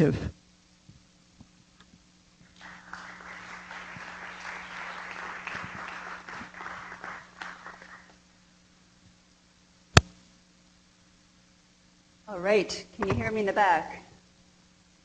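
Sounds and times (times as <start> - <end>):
audience applauding: 2.5 - 8.2.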